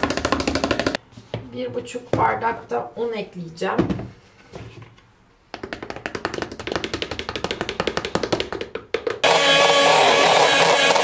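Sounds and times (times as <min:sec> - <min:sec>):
utensil tapping in a bowl: 0:05.5 - 0:09.2
electric mixer whirring: 0:09.2 - 0:11.0.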